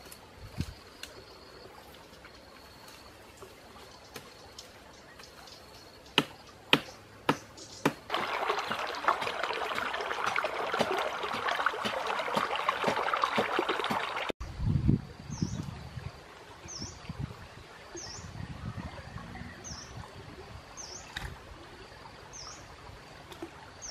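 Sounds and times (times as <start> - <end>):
stream trickling over stones: 7.8 - 14.4, 20.0 - 23.9.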